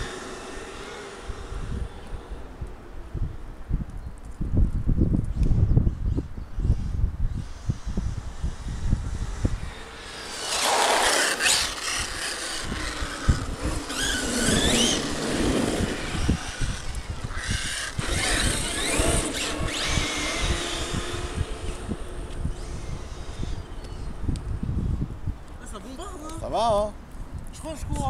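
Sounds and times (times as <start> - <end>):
radio-controlled car motors whining: 0.0 - 2.8, 6.7 - 24.3
wind buffeting microphone: 0.0 - 28.0.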